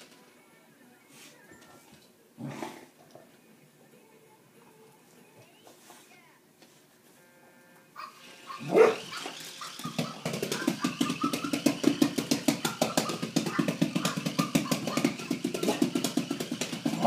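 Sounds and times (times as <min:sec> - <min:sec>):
dog barking: 0:08.0 - 0:11.6, 0:12.6 - 0:15.8.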